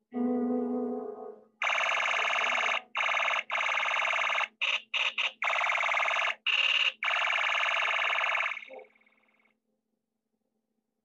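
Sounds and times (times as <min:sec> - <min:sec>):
electronic alarm ringing warble: 0:01.6 - 0:09.5.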